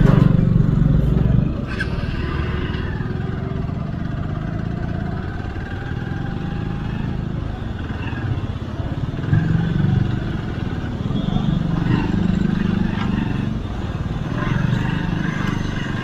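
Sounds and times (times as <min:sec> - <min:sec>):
motorcycle engine running: 0:00.0 - 0:16.0.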